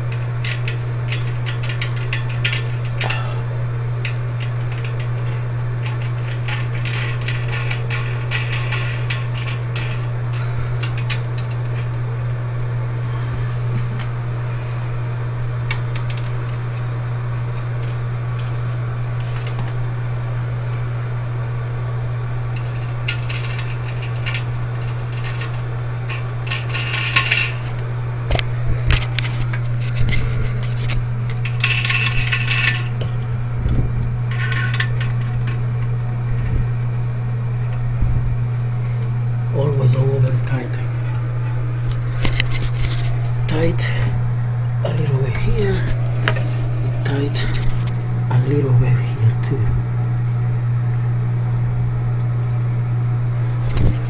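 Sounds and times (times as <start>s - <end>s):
steady low hum: 0.0s - 54.0s
small metal parts clinking: 4.6s - 11.9s, 22.6s - 27.8s, 29.9s - 33.1s, 34.3s - 35.5s.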